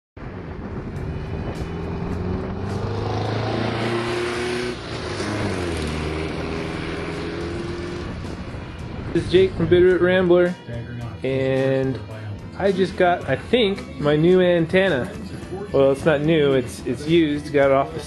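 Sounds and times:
van engine driving past: 0.2s - 9.0s.

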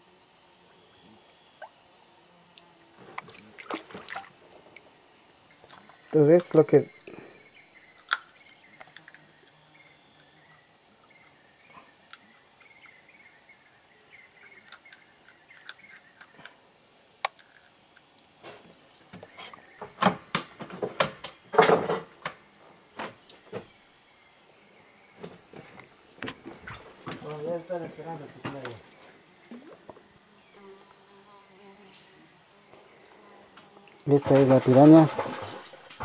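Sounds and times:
insects chorus: 0.0s - 36.0s
sharp knocks and thumps: 18.4s - 22.4s, 34.1s - 36.0s.

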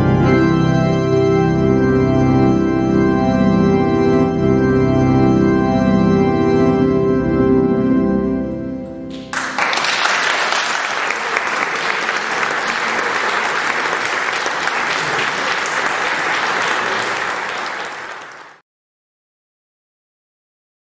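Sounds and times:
organ chord: 0.0s - 18.6s
audience applauding: 9.1s - 18.6s.

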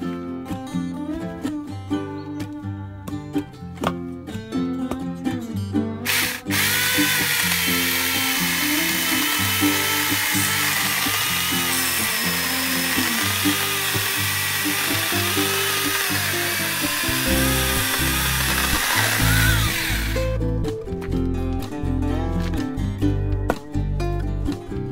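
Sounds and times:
electric chainsaw cutting log: 6.1s - 20.3s.

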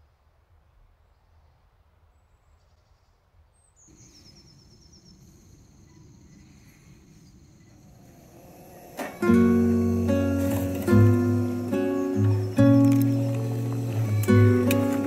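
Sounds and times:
high chirps: 9.2s - 15.0s.

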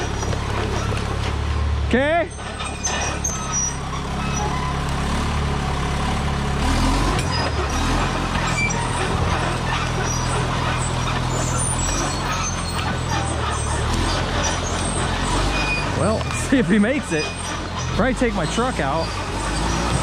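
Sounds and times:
noisy clatter: 0.0s - 1.6s, 7.0s - 20.0s
dozer engine running under load: 0.0s - 20.0s.

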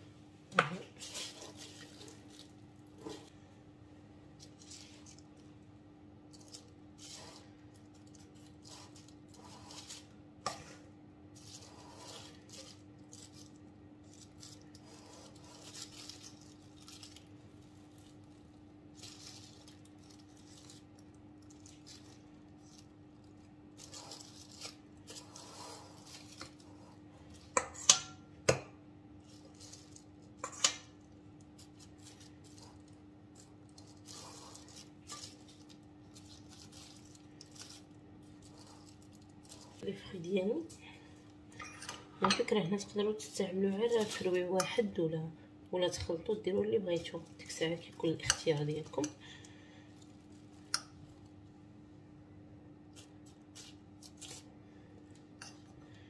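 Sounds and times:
spoon scraping whipped cream: 8.2s - 12.8s, 14.8s - 16.3s, 23.9s - 27.9s
spoon clinking on metal: 41.6s - 42.4s.

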